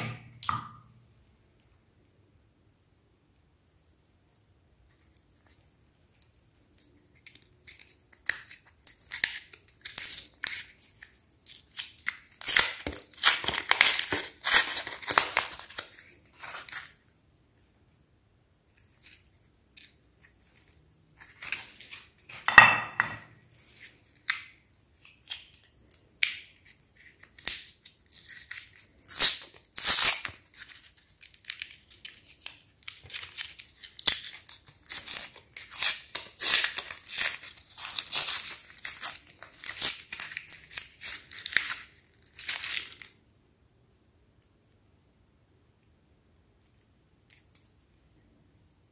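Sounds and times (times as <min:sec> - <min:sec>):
wrappers crinkling and tearing: 0:06.8 - 0:17.0, 0:18.8 - 0:22.4, 0:25.0 - 0:43.2.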